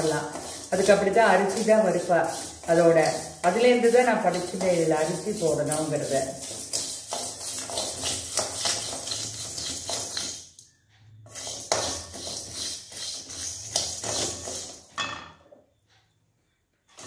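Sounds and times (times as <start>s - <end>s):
dry grains scraping in metal pan: 0.0s - 10.6s, 11.2s - 14.9s.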